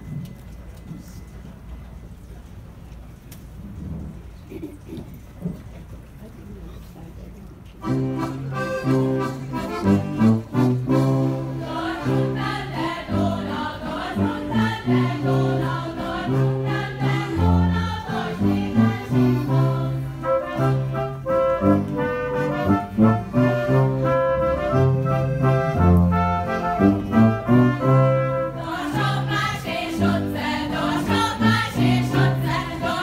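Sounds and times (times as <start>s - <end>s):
folk dance music with brass: 7.9s - 33.0s.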